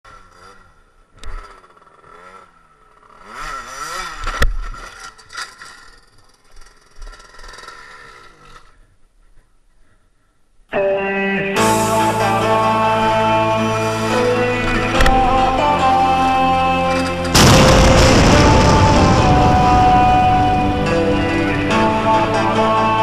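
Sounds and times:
moped engine revving: 0.1s - 8.9s, 11.6s - 23.0s
moped scraping along asphalt: 0.1s - 9.4s
loud crash: 11.6s - 23.0s.

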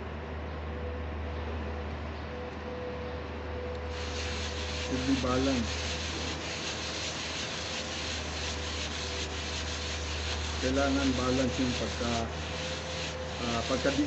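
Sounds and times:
metal rubbing on abrasive sheet: 3.9s - 14.0s.

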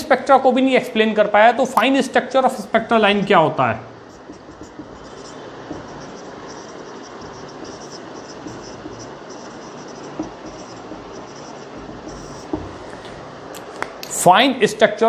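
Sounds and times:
steady background hiss: 0.0s - 15.0s
marker scratching on whiteboard: 4.0s - 13.1s.

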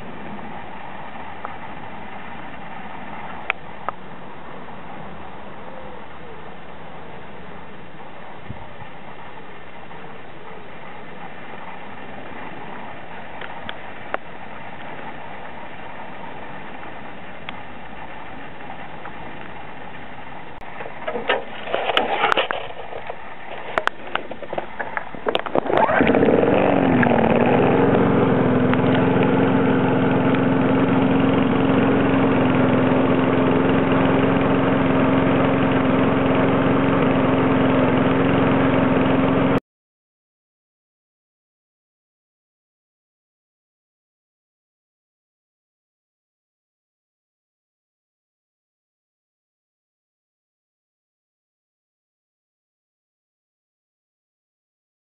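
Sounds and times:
lawnmower engine running: 0.0s - 39.6s
pull cord and engine sputters: 20.6s - 39.6s.

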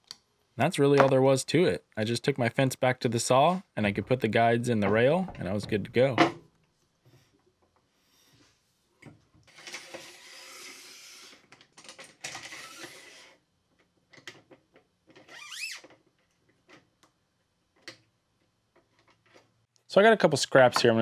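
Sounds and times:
short rising squeak: 15.3s - 15.8s.

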